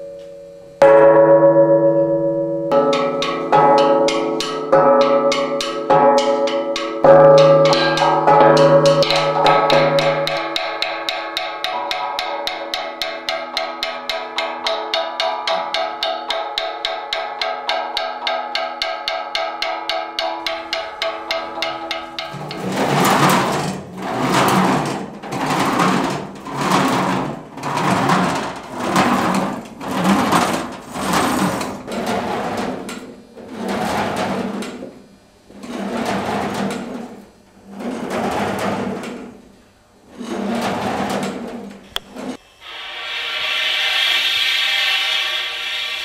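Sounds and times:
steady mechanical hum: 0.0s - 46.0s
scraping on thin metal sheet: 20.9s - 34.9s.

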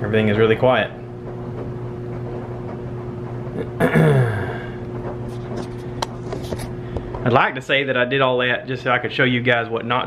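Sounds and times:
washing machine humming: 0.0s - 10.0s.

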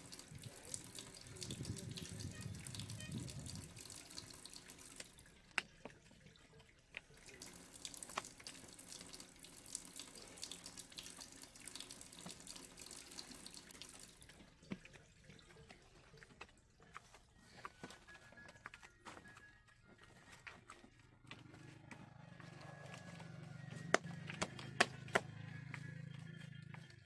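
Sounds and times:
wet clay squelching: 0.1s - 27.0s.

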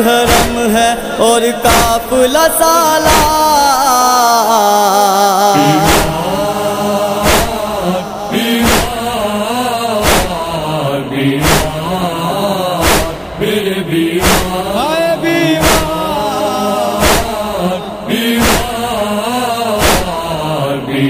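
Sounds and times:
voices chanting wordless melody: 0.0s - 21.0s
heavy chest-beating thumps: 0.2s - 0.8s, 1.7s - 2.2s, 3.0s - 3.6s, 5.7s - 6.4s, 7.2s - 7.9s, 8.6s - 9.2s, 10.0s - 10.4s, 11.4s - 11.9s, 12.8s - 13.4s, 14.2s - 14.8s, 15.4s - 16.2s, 16.9s - 17.6s, 18.4s - 18.8s, 19.8s - 20.2s.

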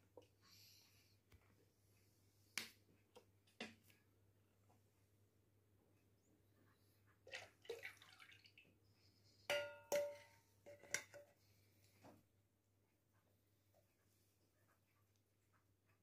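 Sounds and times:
utensil clinking against bowl: 9.5s - 11.3s.

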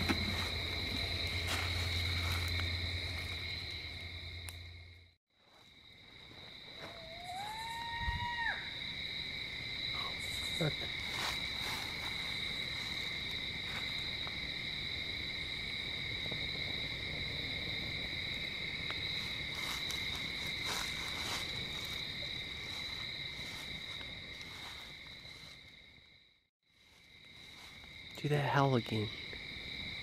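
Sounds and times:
night insects chirping: 0.0s - 30.0s.

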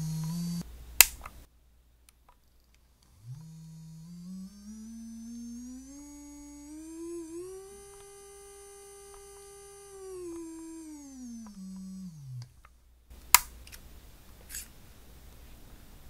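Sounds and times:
electric nail drill whine: 0.0s - 0.6s, 3.1s - 12.6s.

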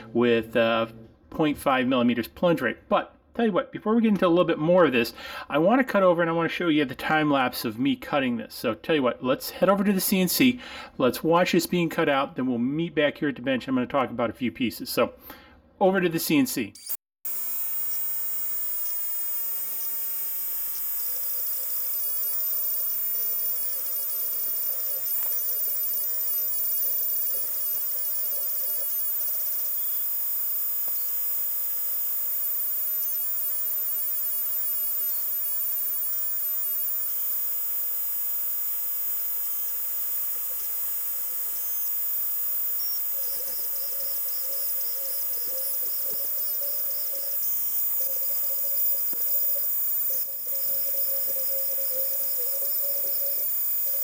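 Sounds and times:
fast high ticking: 17.3s - 54.0s.

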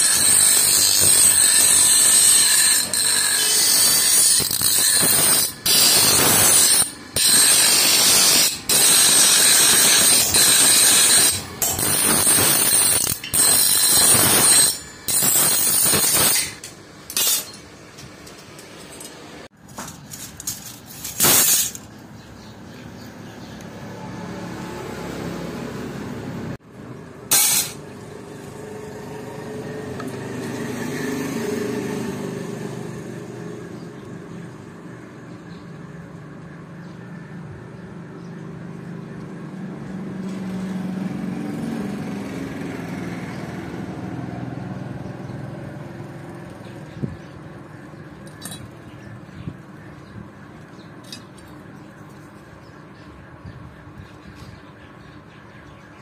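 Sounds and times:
power tool working steel: 0.0s - 19.2s.

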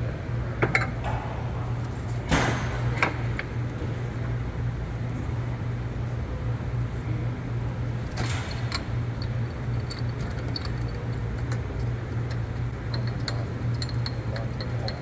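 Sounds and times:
steady low hum: 0.0s - 15.0s
metal clicks and knocks: 8.1s - 15.0s.

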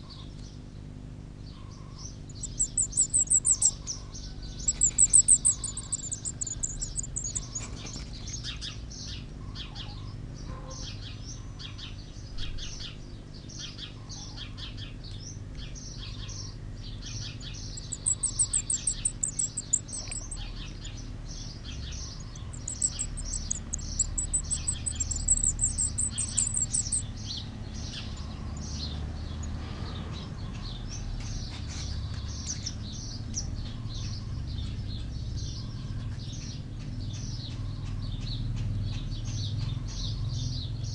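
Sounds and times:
nestlings cheeping: 2.0s - 8.7s, 17.3s - 30.4s.

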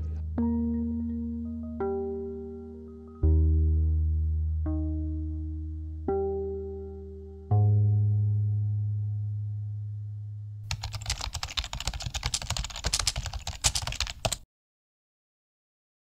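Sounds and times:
rapid keyboard-like clicking: 10.7s - 14.4s.

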